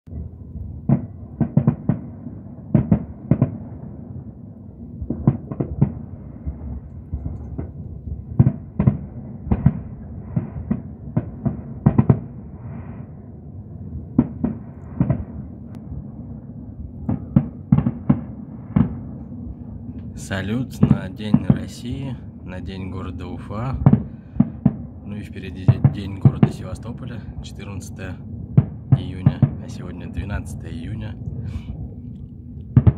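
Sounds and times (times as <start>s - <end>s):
low rumble: 0.1s - 32.9s
firework bangs: 0.8s - 4.0s, 5.0s - 13.2s, 14.1s - 15.6s, 17.0s - 19.2s.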